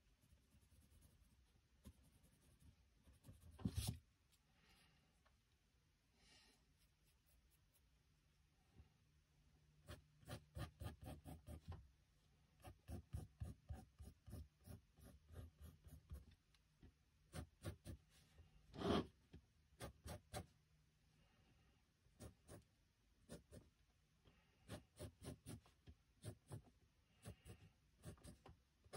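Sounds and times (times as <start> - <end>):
pencil scratching on paper: 0.1 - 3.9, 9.8 - 11.8, 12.6 - 16.4, 17.3 - 18.1, 18.8 - 19.2, 19.8 - 20.5, 22.2 - 23.7, 24.6 - 28.9.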